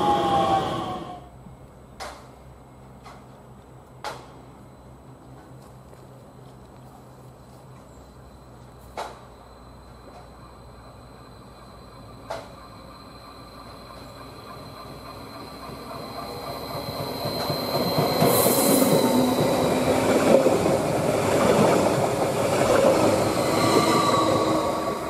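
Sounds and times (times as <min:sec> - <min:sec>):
electric train whine: 0:00.0 - 0:01.8, 0:07.9 - 0:25.0
train wheels on rails: 0:00.0 - 0:25.0.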